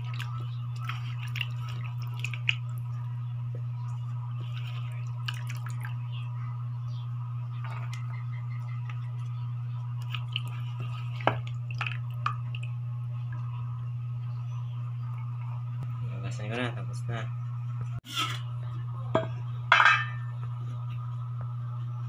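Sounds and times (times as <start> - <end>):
wet squishing and dripping: 0.0 - 3.0, 3.8 - 6.0, 9.9 - 13.6
steady low hum: 0.0 - 22.0.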